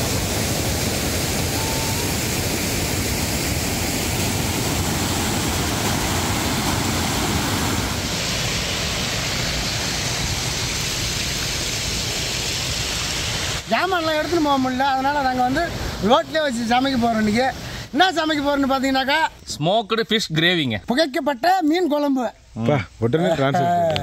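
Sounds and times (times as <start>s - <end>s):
steady rushing noise: 0.0s - 19.2s.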